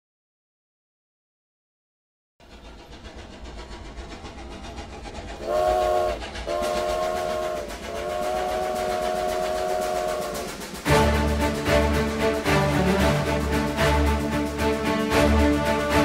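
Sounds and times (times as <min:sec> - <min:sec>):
train rumble and clatter: 0:02.4 - 0:16.0
multi-tone train whistle: 0:05.4 - 0:12.0.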